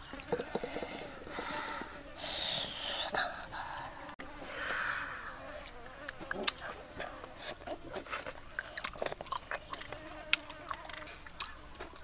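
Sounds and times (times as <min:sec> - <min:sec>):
child chewing wetly: 0:00.0 - 0:02.3, 0:05.6 - 0:12.0.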